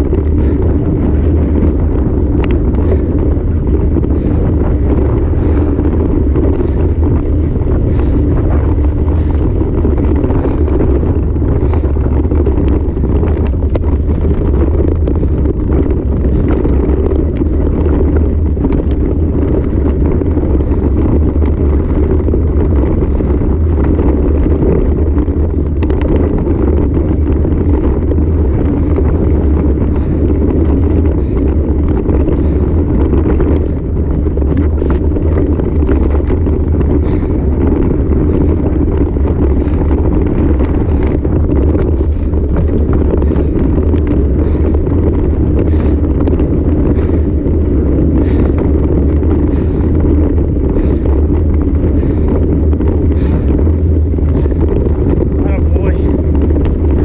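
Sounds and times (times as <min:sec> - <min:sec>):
bicycle tyres rolling on dirt: 0:00.0 - 0:57.0
wind buffeting microphone: 0:00.0 - 0:57.0.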